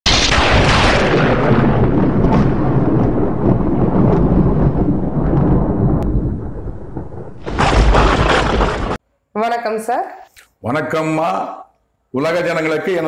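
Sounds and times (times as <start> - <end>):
rolling thunder: 0.1 - 9.0.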